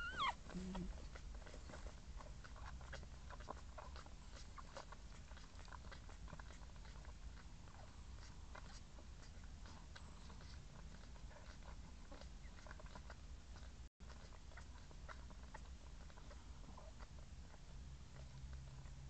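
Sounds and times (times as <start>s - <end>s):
puppy squeaks: 0.0s - 7.0s.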